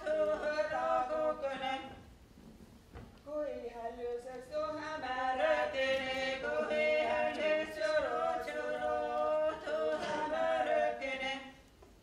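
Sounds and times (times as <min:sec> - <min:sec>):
group singing unaccompanied: 0:00.0 - 0:02.0, 0:04.0 - 0:11.6.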